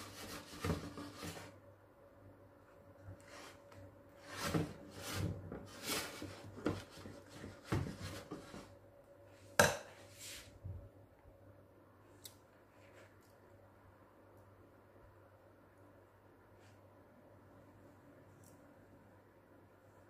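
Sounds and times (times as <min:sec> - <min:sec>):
whisk scraping glass bowl: 0:00.0 - 0:01.5.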